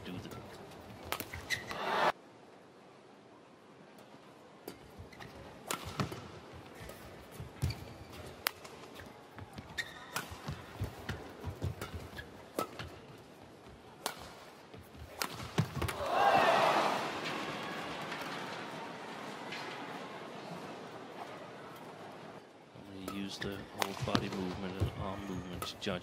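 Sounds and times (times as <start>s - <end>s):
rackets hitting shuttlecock: 0.1s - 1.9s, 4.7s - 7.0s, 7.6s - 13.1s, 14.0s - 16.1s, 23.0s - 26.0s.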